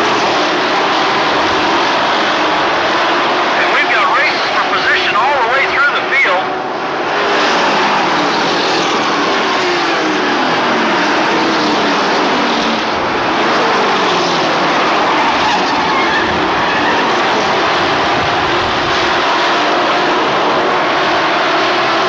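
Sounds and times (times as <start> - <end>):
race truck engines passing: 0.0 - 22.0.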